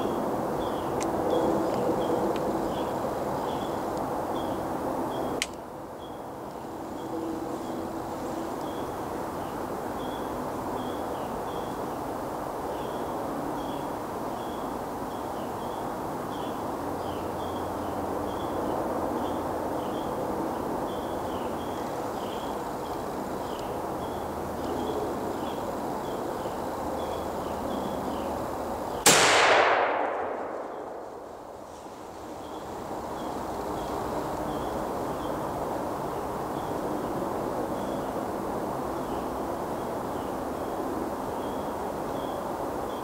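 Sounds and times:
woodland background hiss: 0.0s - 43.0s
gunshot: 29.1s - 31.0s.

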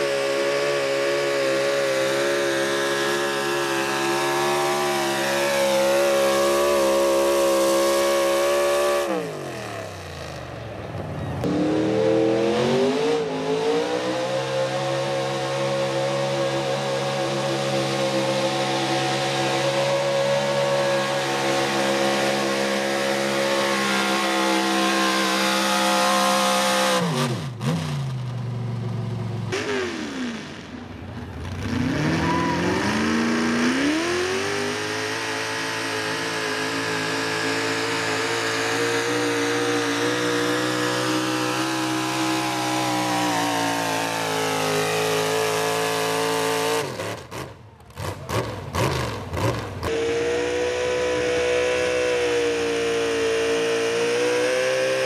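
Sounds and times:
vehicle engine at high revs: 0.0s - 55.0s.

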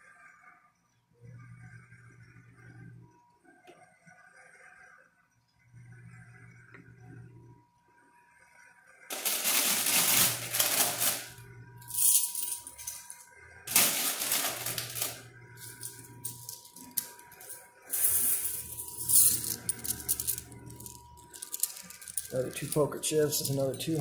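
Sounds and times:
faint machine hum: 0.0s - 24.0s
coins clattering in machine: 9.1s - 24.0s
small coin clicks: 9.1s - 24.0s.

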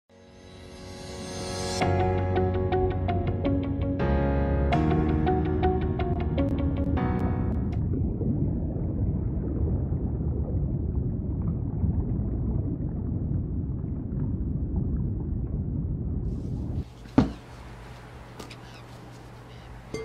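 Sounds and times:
music notes: 0.4s - 7.8s.

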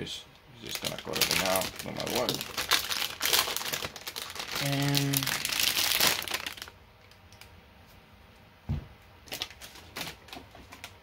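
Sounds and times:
metallic bag crinkling: 0.6s - 6.8s, 9.3s - 11.0s.

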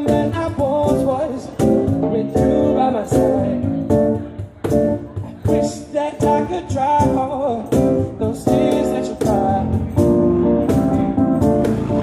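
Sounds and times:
person singing: 0.0s - 4.2s, 5.2s - 10.2s
keyboard chords: 0.0s - 12.0s.

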